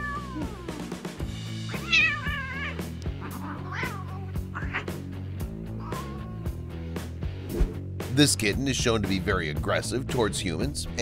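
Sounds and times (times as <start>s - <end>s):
cat meowing: 0.0s - 0.8s, 1.7s - 5.0s, 5.7s - 6.8s.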